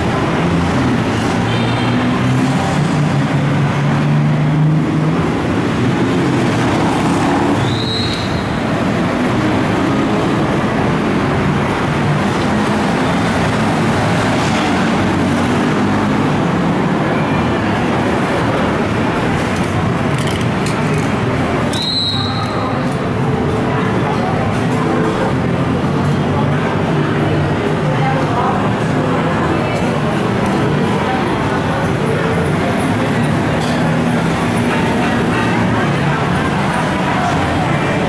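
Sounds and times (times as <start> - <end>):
traffic rumble: 0.0 - 38.0.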